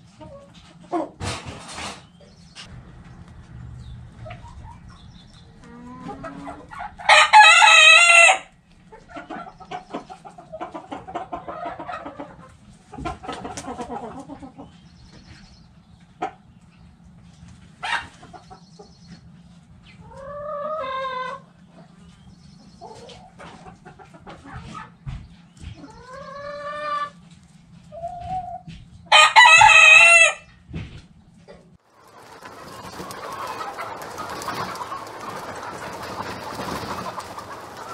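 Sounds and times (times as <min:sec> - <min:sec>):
hens clucking: 0:00.0 - 0:37.9
rooster crowing: 0:07.0 - 0:08.5, 0:29.1 - 0:30.5.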